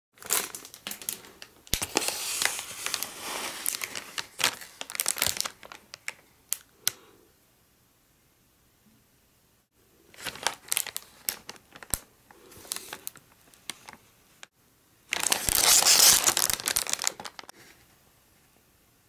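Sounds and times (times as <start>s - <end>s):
plastic packaging crinkling: 0.2s - 6.7s, 10.1s - 14.1s, 15.1s - 17.5s.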